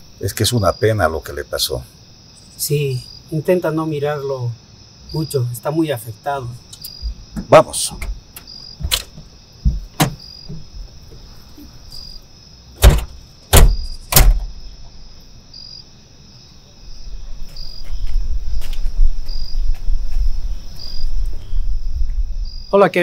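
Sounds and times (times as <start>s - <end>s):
crickets chirping: 0.0s - 23.0s
truck doors slamming shut: 7.0s - 10.9s, 12.8s - 14.9s.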